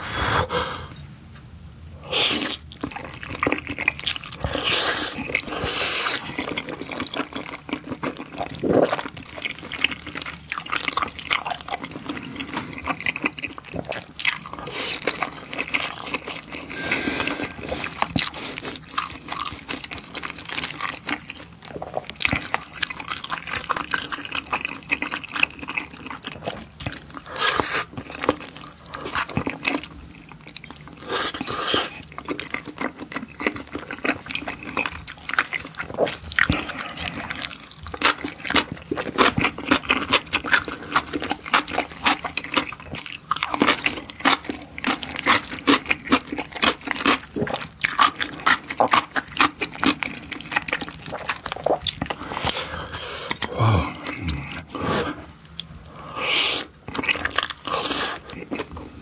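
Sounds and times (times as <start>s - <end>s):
slurping noodles: 2.0s - 6.5s, 16.4s - 18.6s, 55.9s - 58.4s
chewing: 2.2s - 59.0s.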